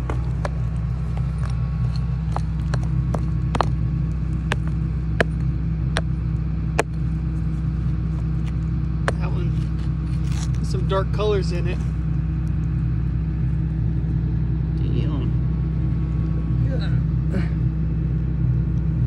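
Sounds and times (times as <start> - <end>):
rock pick striking rock: 0.0 - 7.2, 8.4 - 9.5
diesel engine running: 0.0 - 19.0
small stones clattering: 1.2 - 3.8, 4.4 - 5.4.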